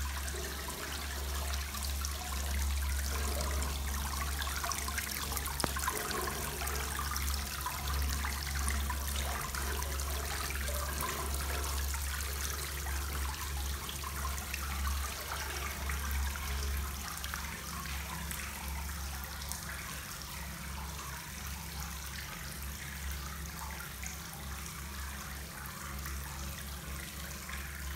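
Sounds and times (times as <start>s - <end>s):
water splashing into pool: 0.0s - 13.0s.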